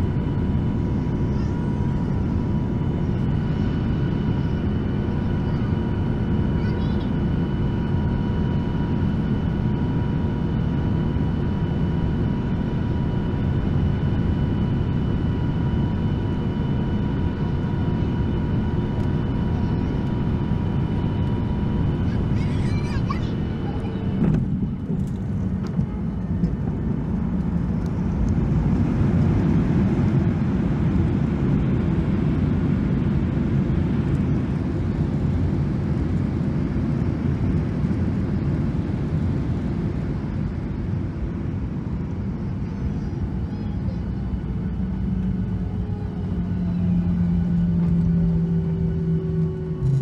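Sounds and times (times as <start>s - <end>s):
jet cabin rumble: 0.0s - 50.0s.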